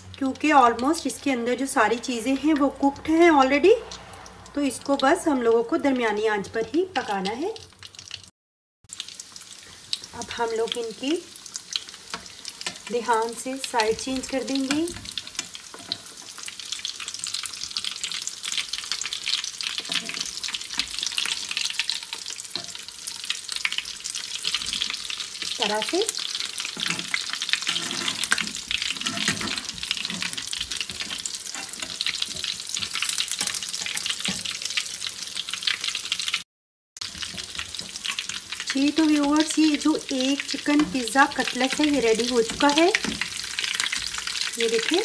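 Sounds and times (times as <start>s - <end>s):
chicken sizzling in a pan: 8.9s - 36.4s, 37.0s - 45.0s
spatula scraping a pan: 13.9s - 25.6s, 26.3s - 34.6s.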